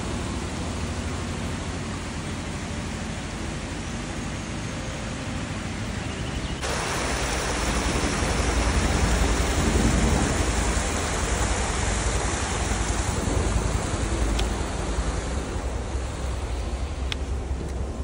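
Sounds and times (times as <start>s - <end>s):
water rushing over waterfall: 6.6s - 18.0s.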